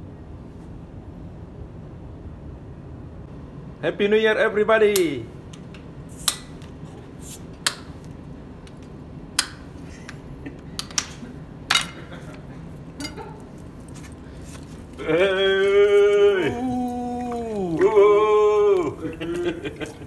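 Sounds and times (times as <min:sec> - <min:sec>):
dishes and glassware clinking: 0:11.7 - 0:12.2, 0:13.0 - 0:13.5
person calling out: 0:15.0 - 0:19.9.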